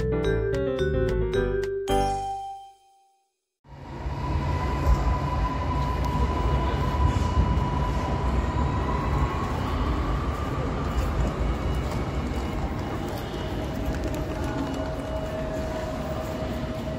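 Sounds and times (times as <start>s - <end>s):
distant electric train rumble: 3.7s - 16.9s
thin train whine: 3.7s - 16.9s.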